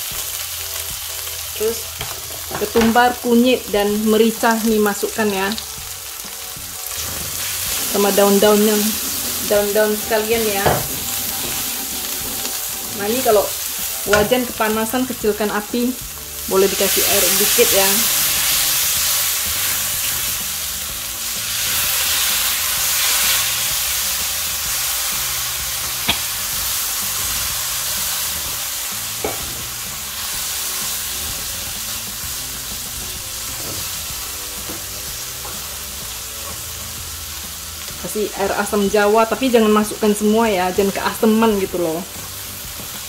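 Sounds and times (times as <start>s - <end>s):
paste sizzling in oil: 0.0s - 43.0s
spatula scraping wok: 6.8s - 14.9s.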